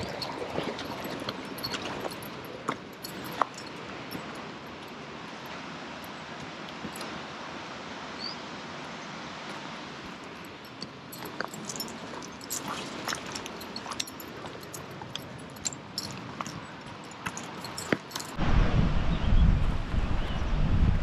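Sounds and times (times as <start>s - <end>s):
wind hiss: 0.0s - 21.0s
footsteps on gravelly dirt trail: 11.1s - 18.4s.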